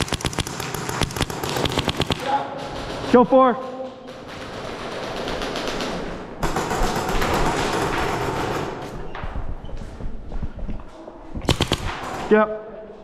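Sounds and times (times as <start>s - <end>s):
rapid airsoft gunfire: 0.0s - 8.8s, 11.4s - 12.4s.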